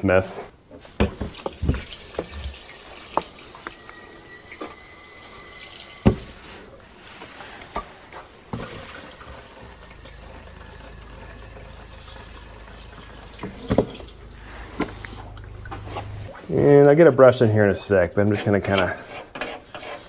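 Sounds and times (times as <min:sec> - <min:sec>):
fuel pouring and splashing: 0:01.2 - 0:07.6, 0:08.5 - 0:16.4.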